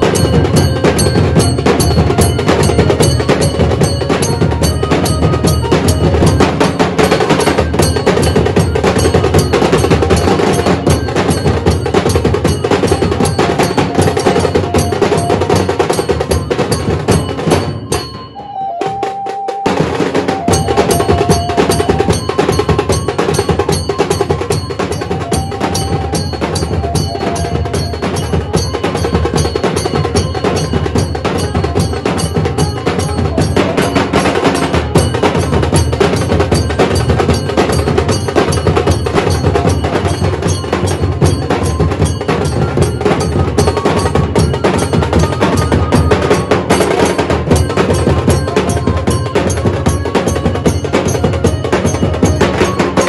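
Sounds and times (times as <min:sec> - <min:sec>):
drums beaten with sticks: 0:00.0 - 0:53.0.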